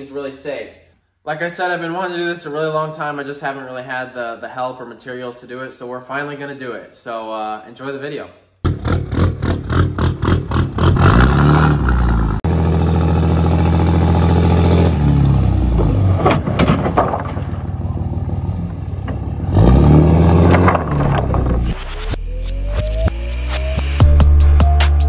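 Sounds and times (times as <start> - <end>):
pickup truck engine revving: 8.7 - 16.6, 17.6 - 21.8
lumber clattering and scraping: 15.6 - 21.8.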